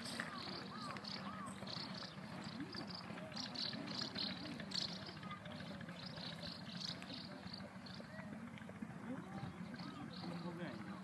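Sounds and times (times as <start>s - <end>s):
small birds chirping: 0.0s - 11.0s
people talking: 2.5s - 11.0s.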